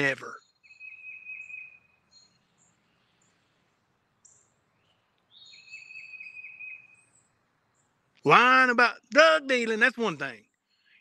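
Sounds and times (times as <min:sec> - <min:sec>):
short high bird chirps: 0:00.2 - 0:03.3, 0:04.2 - 0:07.9.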